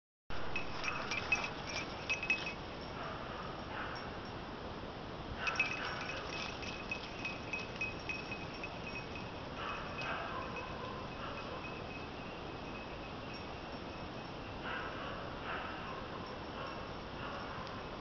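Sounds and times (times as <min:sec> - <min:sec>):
small bell jingling: 0:00.5 - 0:03.0, 0:05.4 - 0:14.5.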